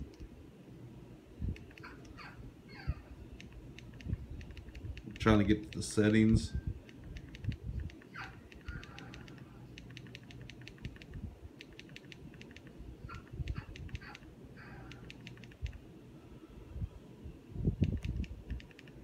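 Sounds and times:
low steady hum: 0.0s - 19.0s.

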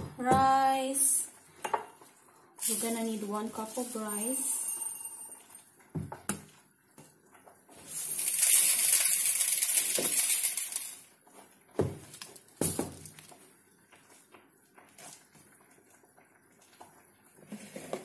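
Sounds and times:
rice pouring into glass: 2.6s - 5.7s, 7.9s - 11.1s.

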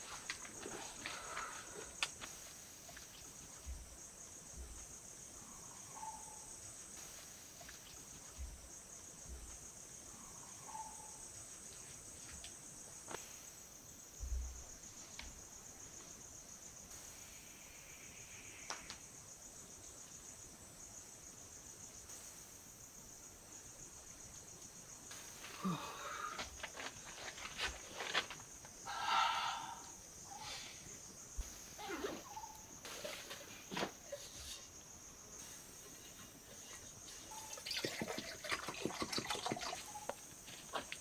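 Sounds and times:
insects chirring: 0.0s - 41.0s
short faint calls: 28.9s - 31.0s.

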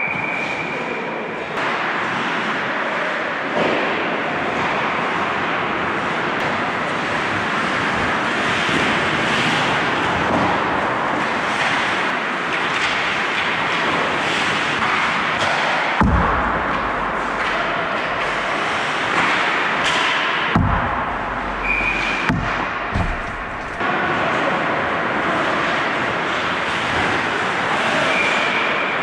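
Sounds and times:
hockey sticks and puck clicking: 6.4s - 24.4s
heavy thump: 16.0s - 18.6s, 20.6s - 23.8s.

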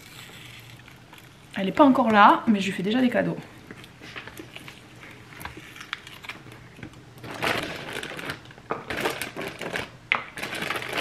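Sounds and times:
plastic bags crackling: 3.6s - 11.0s.

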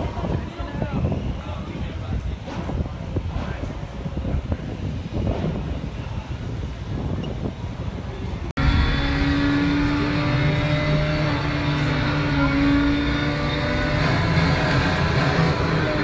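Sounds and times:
low rumbling noise: 0.0s - 16.0s
mechanical drone: 8.2s - 16.0s.

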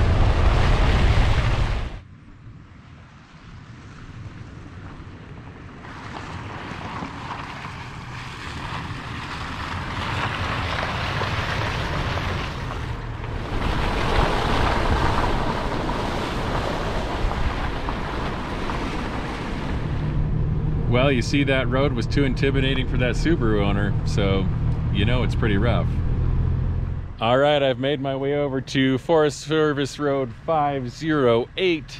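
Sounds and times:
low engine rumble: 0.0s - 31.9s
tyres on gravel road: 0.0s - 31.9s.

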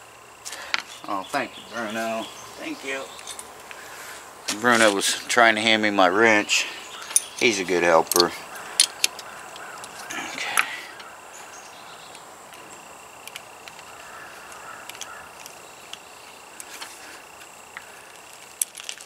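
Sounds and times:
ratcheting wrench clicks: 7.0s - 11.1s.

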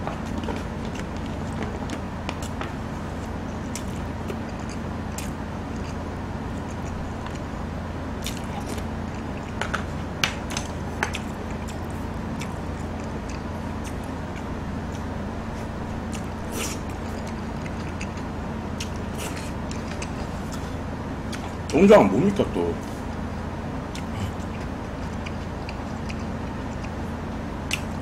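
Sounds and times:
chewing: 0.0s - 7.5s, 8.2s - 21.7s, 23.9s - 28.0s
low hum: 0.0s - 28.0s.

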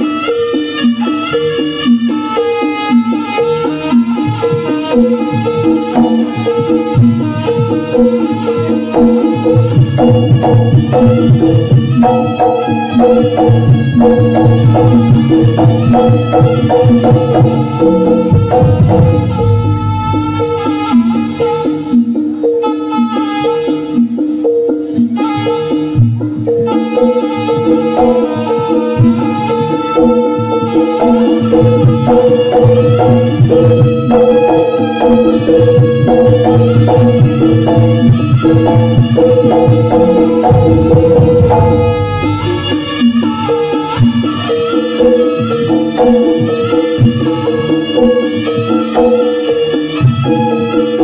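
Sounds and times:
hand drum steady beat: 3.2s - 22.5s, 26.0s - 51.0s
ringing gong notes: 5.5s - 22.9s, 26.7s - 46.5s.

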